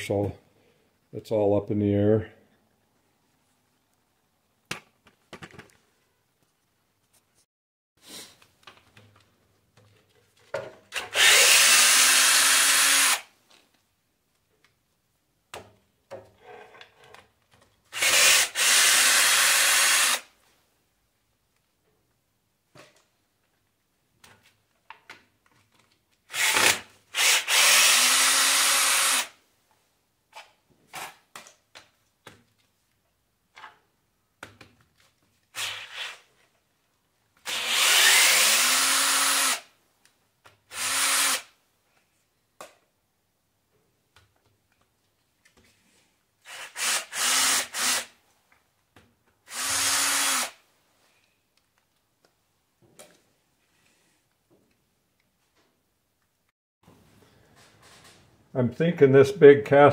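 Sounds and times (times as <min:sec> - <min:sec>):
cordless drill spinning: 0:10.9 - 0:13.3, 0:17.9 - 0:20.3, 0:26.3 - 0:29.4, 0:35.5 - 0:36.3, 0:37.4 - 0:39.7, 0:40.7 - 0:41.5, 0:46.4 - 0:48.1, 0:49.5 - 0:50.6.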